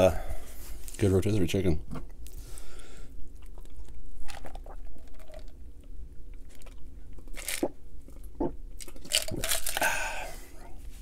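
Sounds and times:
person gulping soda: 0:03.3 - 0:10.3.

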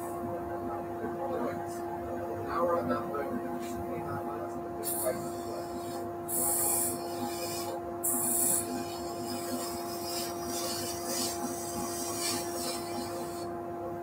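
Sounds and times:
wood lathe humming: 0:04.8 - 0:13.5
chisel scraping spinning wood: 0:05.0 - 0:13.5.

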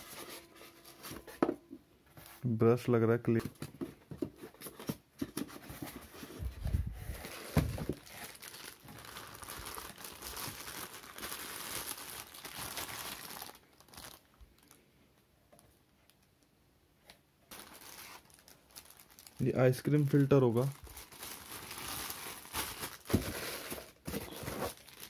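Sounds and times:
plastic wrap crinkling: 0:06.7 - 0:14.8, 0:17.5 - 0:25.0.

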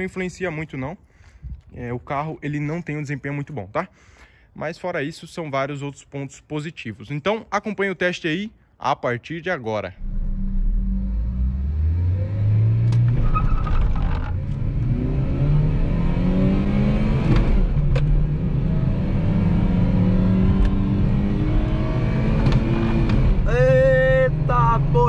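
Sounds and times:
car engine accelerating: 0:10.0 - 0:25.0.

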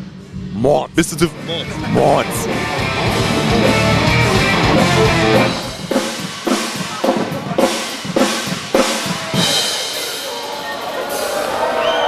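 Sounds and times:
drum strikes: 0:00.6 - 0:09.9
folk-rock band playing: 0:01.4 - 0:09.8.

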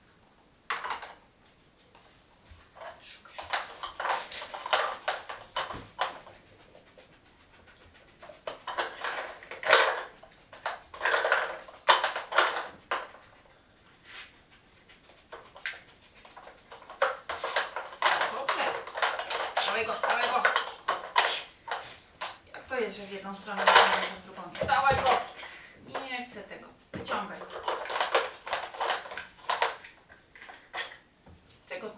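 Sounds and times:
plastic lids clicking and knocking: 0:08.6 - 0:13.2, 0:16.4 - 0:22.4, 0:27.0 - 0:31.0.

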